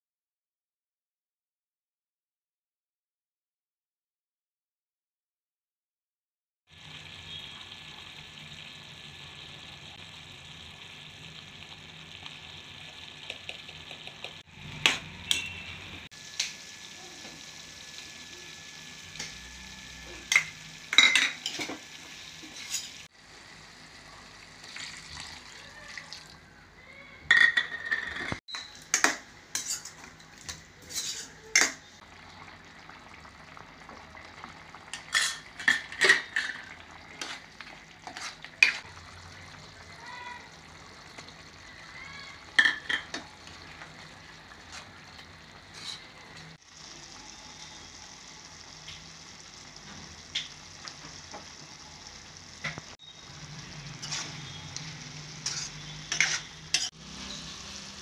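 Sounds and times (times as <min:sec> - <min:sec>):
curry sizzling in a pot: 0:06.7 - 0:27.0, 0:28.4 - 0:58.0
spoon scraping a pot: 0:22.4 - 0:23.1, 0:27.3 - 0:31.8, 0:34.9 - 0:38.9, 0:45.6 - 0:46.3, 0:54.0 - 0:54.8, 0:55.4 - 0:57.4.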